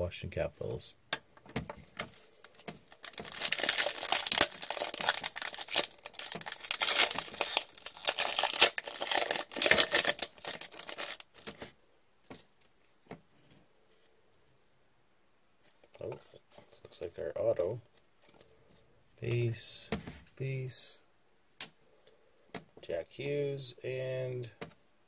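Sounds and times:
foil wrapper crinkling and tearing: 2.5 - 11.4.

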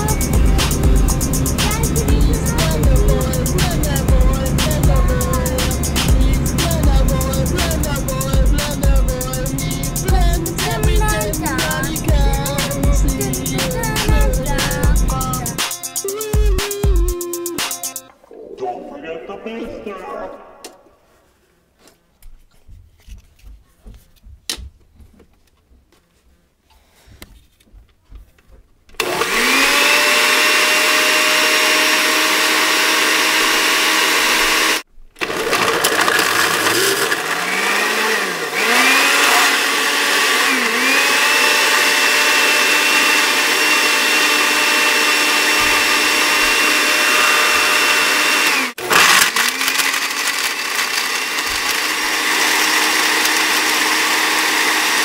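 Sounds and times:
blender motor running: 0.0 - 17.4, 29.0 - 55.0.

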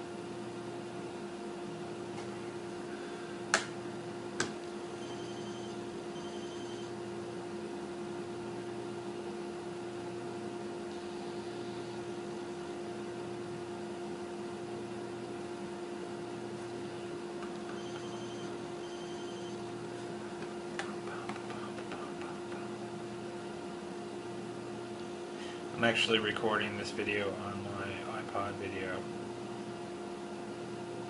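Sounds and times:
steady mechanical hum: 0.0 - 31.0.

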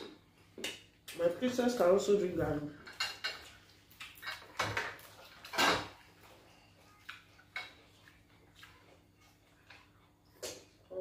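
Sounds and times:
cutlery clinking on plates: 2.8 - 8.2.

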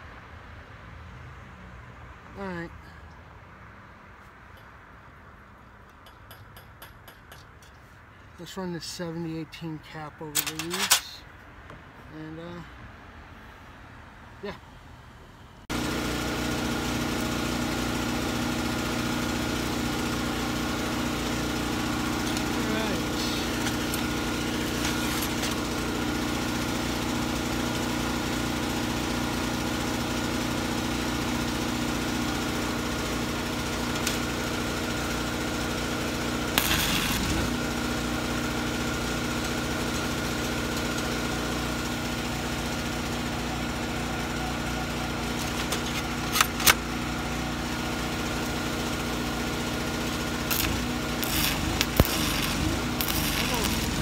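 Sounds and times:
welding arc crackling: 15.7 - 27.9, 33.1 - 41.3, 49.7 - 54.0
small engine hum: 15.7 - 54.0.

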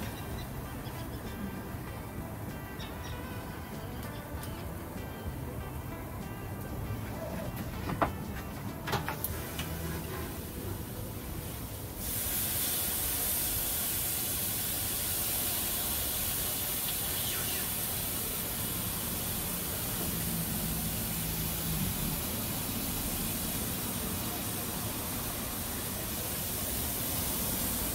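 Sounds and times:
meat sizzling on a grill: 9.1 - 27.9.

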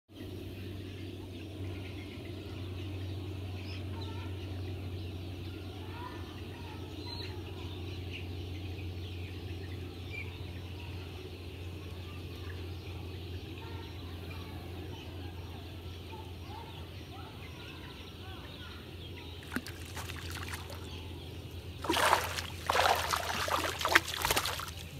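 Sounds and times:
steady low hum: 0.2 - 17.4, 18.2 - 24.9
faint bird calls: 13.6 - 24.8.

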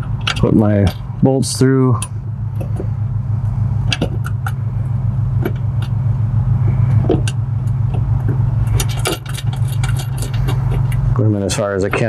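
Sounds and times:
metal bolts clicking and clinking: 0.0 - 1.1, 8.7 - 11.0
steady low rumble: 0.0 - 12.0.

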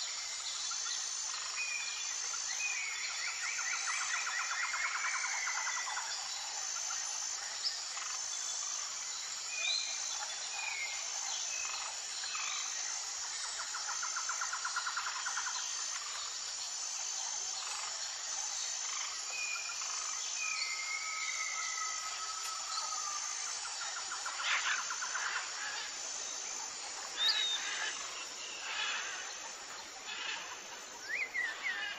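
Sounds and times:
insects chirping: 0.0 - 31.9
birds calling and trilling: 19.8 - 31.9.

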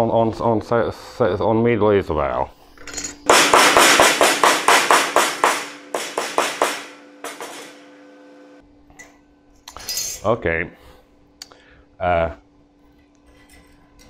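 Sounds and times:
hammer striking steel plate: 3.2 - 8.2.

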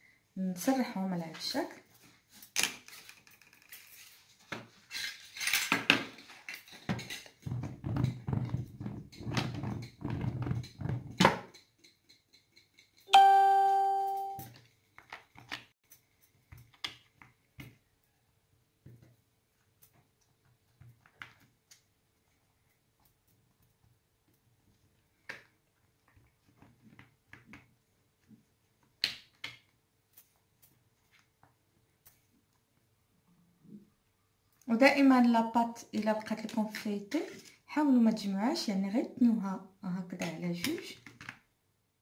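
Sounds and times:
bell-like ding: 13.1 - 14.5.

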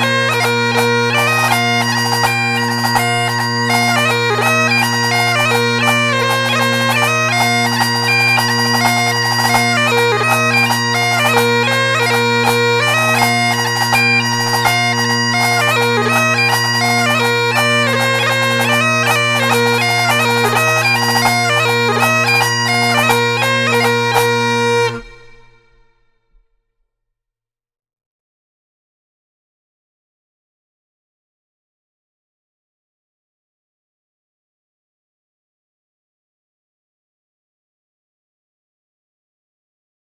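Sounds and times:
bagpipes playing: 0.0 - 26.1.

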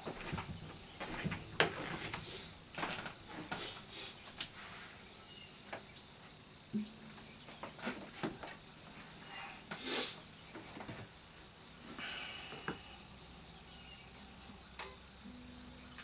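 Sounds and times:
guitar handling knocks and rustles: 0.0 - 4.5, 6.8 - 8.6, 10.5 - 11.1
crickets chirping: 0.0 - 16.0.

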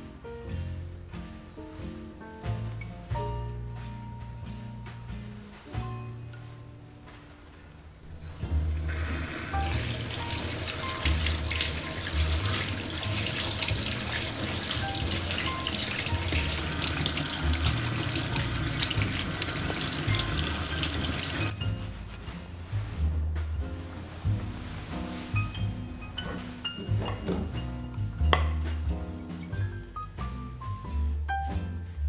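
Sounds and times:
tap water splashing into colander: 8.8 - 21.5.

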